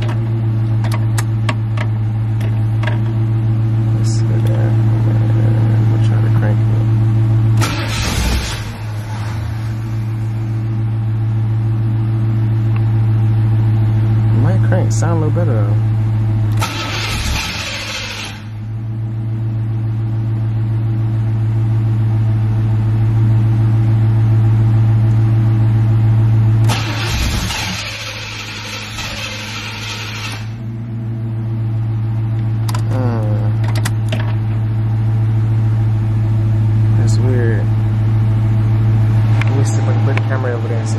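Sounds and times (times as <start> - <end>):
engine cranking on starter: 7.6 - 9.6, 16.5 - 18.5, 26.6 - 30.6.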